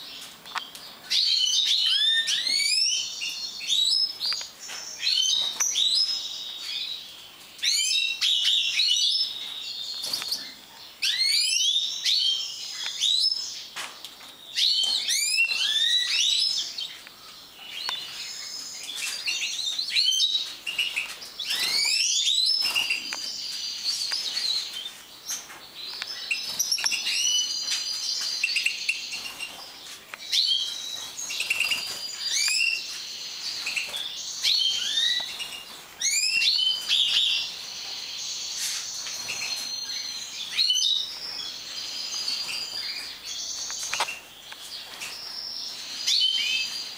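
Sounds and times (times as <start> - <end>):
goldfinches singing and twittering: 14.3 - 46.9.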